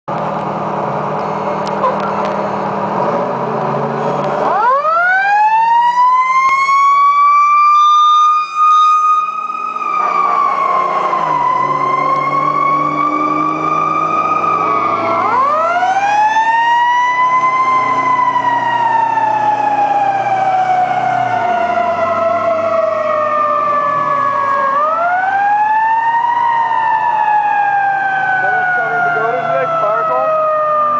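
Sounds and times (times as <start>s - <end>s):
truck engine running: 0.1s - 4.6s
fire truck siren wailing: 0.2s - 30.9s.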